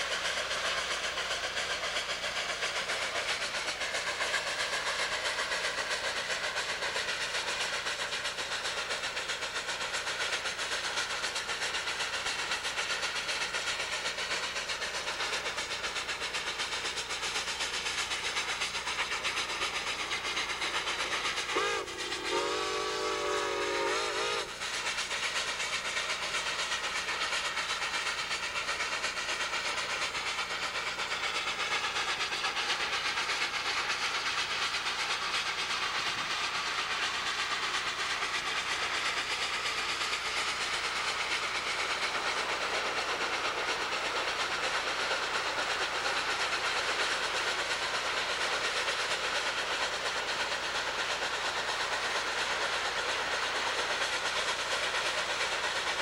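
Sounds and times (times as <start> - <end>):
train running on rails: 0.0 - 56.0
chime steam whistle: 21.5 - 24.6.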